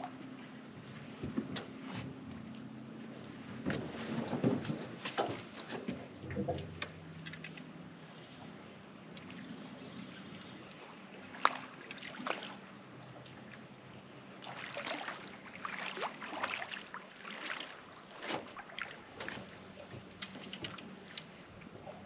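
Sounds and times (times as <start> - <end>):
fish splashing in water: 14.4 - 19.5.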